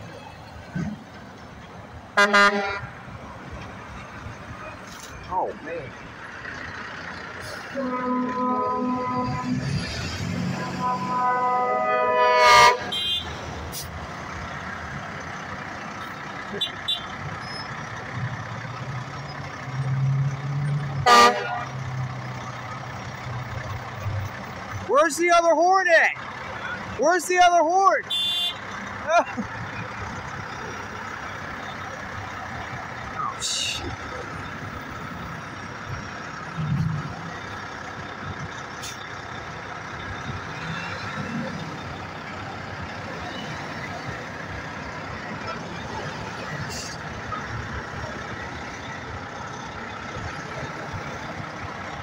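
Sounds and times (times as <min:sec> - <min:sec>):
diesel engine idling: 0:00.0 - 0:52.0
truck horn toot: 0:02.2 - 0:02.9, 0:07.7 - 0:09.7, 0:10.5 - 0:13.5, 0:16.5 - 0:17.7, 0:21.0 - 0:21.8, 0:28.0 - 0:28.7.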